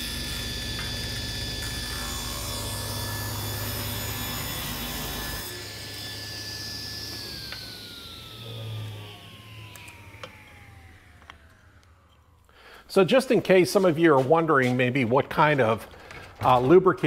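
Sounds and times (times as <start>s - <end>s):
table saw cutting wood: 0.0s - 12.3s
saw blade whine: 0.0s - 14.5s.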